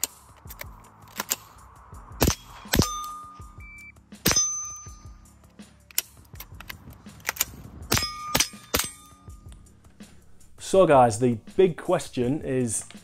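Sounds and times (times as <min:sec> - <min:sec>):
suppressed rifle shots: 0:02.2 - 0:03.1, 0:07.2 - 0:09.1
ringing clang of steel target: 0:02.2 - 0:03.6, 0:04.2 - 0:05.2, 0:07.9 - 0:09.4.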